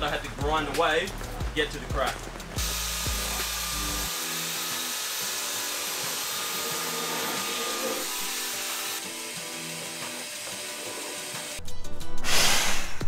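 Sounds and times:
electric power sander running: 2.6s - 11.6s.

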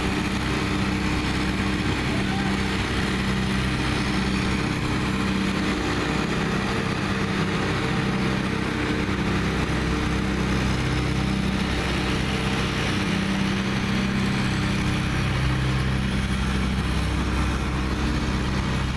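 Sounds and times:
engine drone: 0.0s - 18.9s.

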